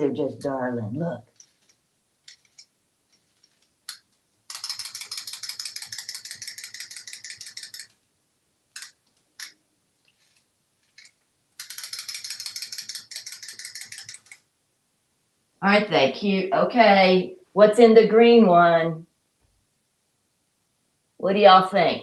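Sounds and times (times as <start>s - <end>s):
wind-up toy clockwork clicking: 3.9s - 8.0s, 8.8s - 9.6s, 11.0s - 14.4s.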